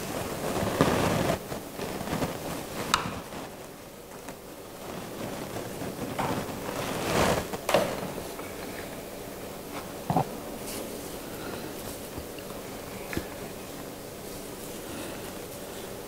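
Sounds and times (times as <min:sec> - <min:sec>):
leaves rustling: 0:00.0 - 0:16.0.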